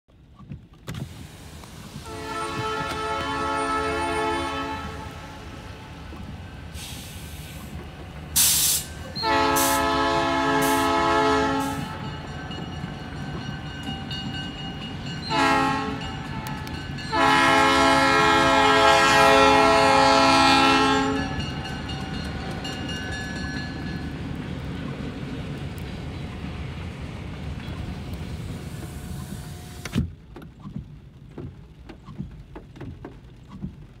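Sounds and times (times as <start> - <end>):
passing train rumble: 0.1 - 34.0
train air horn blasts: 2.0 - 6.1, 8.4 - 12.2, 15.3 - 21.4.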